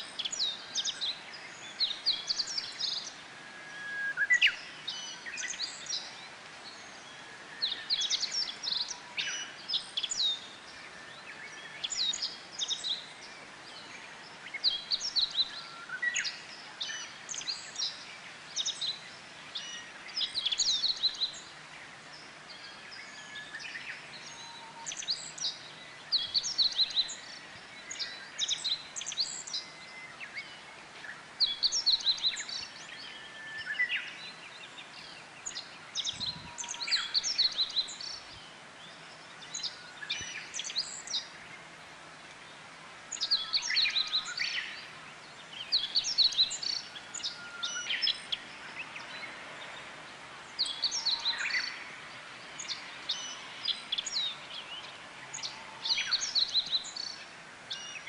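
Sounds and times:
songbirds chirping: 0.0 - 58.0.

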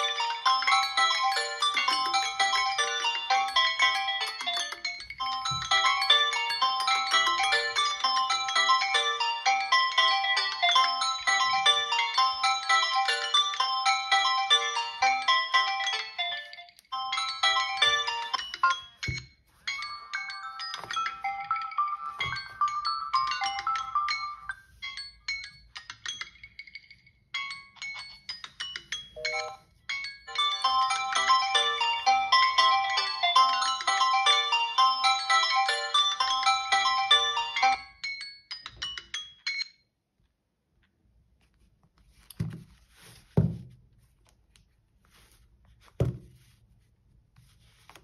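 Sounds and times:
phone alarm tones chiming: 29.2 - 29.6
light rustling and handling: 41.3 - 48.0.

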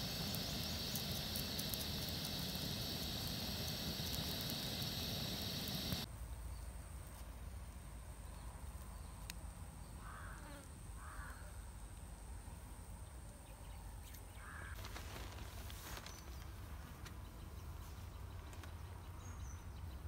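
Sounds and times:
omelette sizzling in a pan: 0.0 - 6.1
steady high hiss: 0.0 - 6.2.

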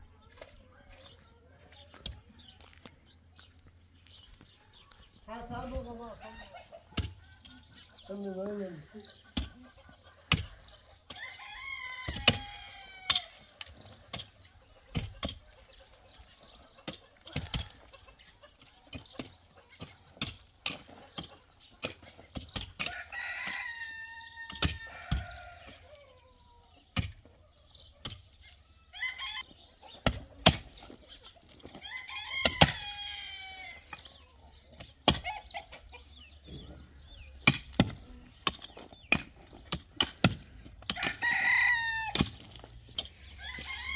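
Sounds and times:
rooster crowing: 11.2 - 13.3, 41.0 - 42.2
pickaxe striking stony ground: 27.0 - 27.2, 30.0 - 31.8, 34.8 - 35.5, 37.2 - 41.4, 42.0 - 43.7
stones clattering: 30.4 - 31.8, 42.1 - 43.9
shovels scraping: 42.1 - 43.9.

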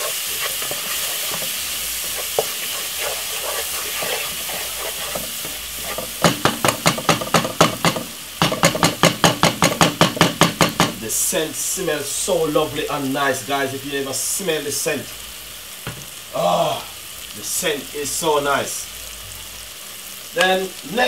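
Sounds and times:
wooden spoon scraping a pot: 0.0 - 7.4
onions sizzling in oil: 0.0 - 21.0.

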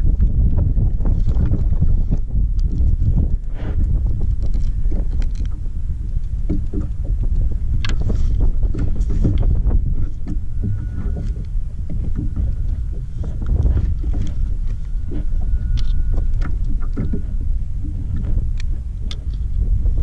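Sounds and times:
water sloshing against hull: 0.0 - 20.0
wind rumbling on microphone: 0.0 - 20.0
fishing gear clicks and knocks: 4.1 - 17.2, 18.2 - 19.6.

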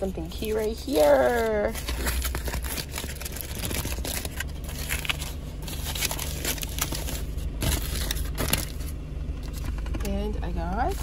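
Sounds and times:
low hum: 0.0 - 11.0
aluminium foil crinkling: 0.3 - 9.6.

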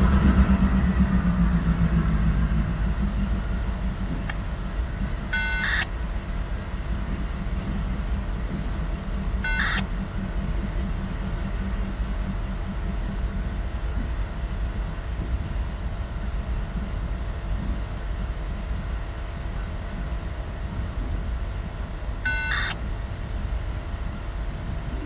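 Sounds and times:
diesel locomotive engine rumbling: 0.0 - 25.0
short high beep: 5.4 - 5.8, 9.4 - 9.8, 22.3 - 22.8.

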